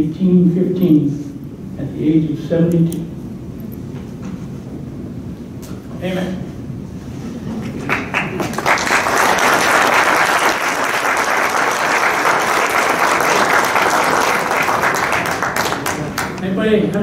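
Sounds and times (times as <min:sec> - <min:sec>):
audience applauding: 0:07.6 - 0:16.6.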